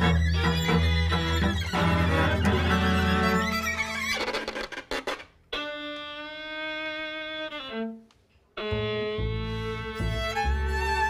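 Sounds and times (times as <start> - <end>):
double bass: 0.0 - 4.0, 8.6 - 11.0
string quintet playing: 0.0 - 11.0.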